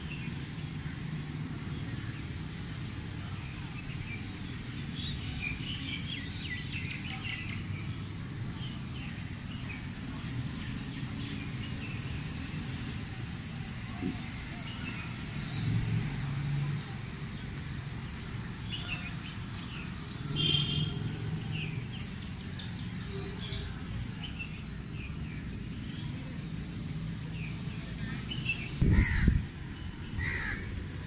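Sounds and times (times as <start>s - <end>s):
small birds chirping: 0.0s - 13.3s, 17.3s - 30.6s
crows cawing: 28.9s - 29.4s, 30.2s - 30.7s.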